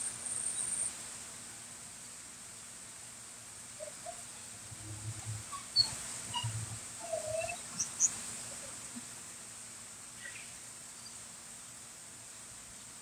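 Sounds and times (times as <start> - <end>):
faint bird chirps: 3.8 - 8.7, 10.2 - 11.2.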